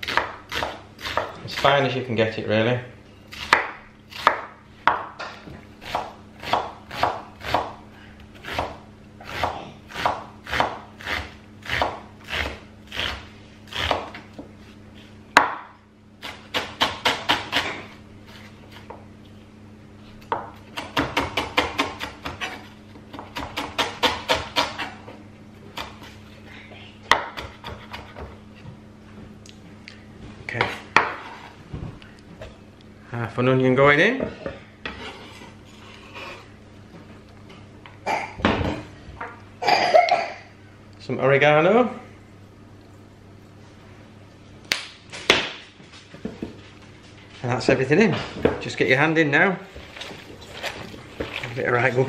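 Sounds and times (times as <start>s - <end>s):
knife chopping on wooden board: 0.0s - 1.4s, 3.4s - 7.8s, 8.4s - 14.2s, 20.3s - 25.0s, 27.1s - 28.4s.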